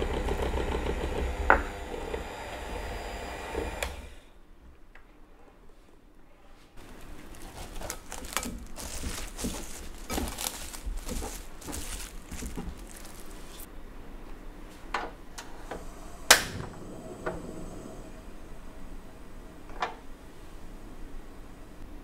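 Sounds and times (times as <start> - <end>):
cling film crinkling: 6.8 - 13.7.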